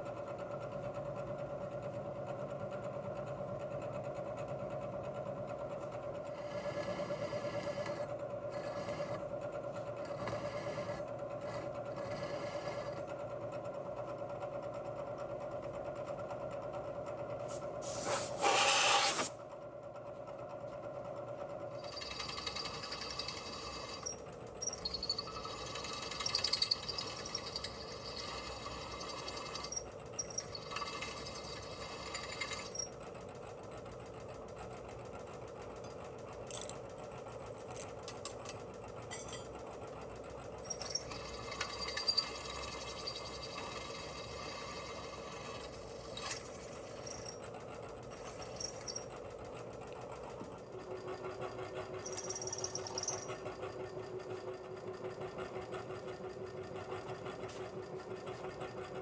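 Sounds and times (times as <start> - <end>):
milling machine spindle humming: 5.9 - 13.0, 21.8 - 33.0, 35.6 - 53.6
drill scraping metal: 17.8 - 19.3, 21.8 - 32.9, 40.7 - 47.4, 48.1 - 49.1.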